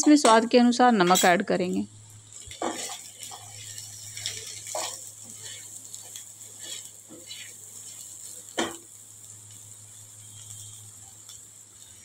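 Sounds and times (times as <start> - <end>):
spatula scraping a pan: 2.3 - 8.9.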